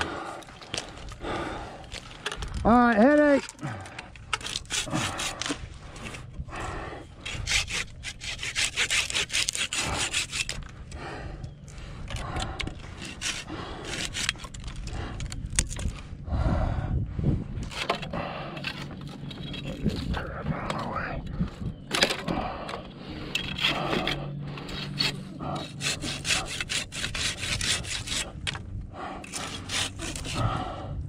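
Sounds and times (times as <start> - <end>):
hand saw cutting branch: 4.3 - 6.2, 7.2 - 10.7, 12.2 - 15.8, 23.1 - 28.6, 29.2 - 30.8.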